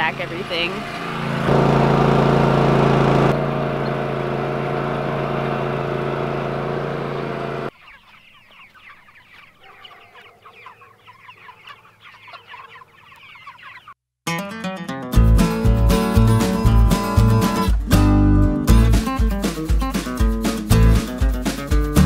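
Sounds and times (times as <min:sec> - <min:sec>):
farm vehicle engine running: 0:00.0 - 0:07.8
chickens cheeping: 0:07.7 - 0:14.0.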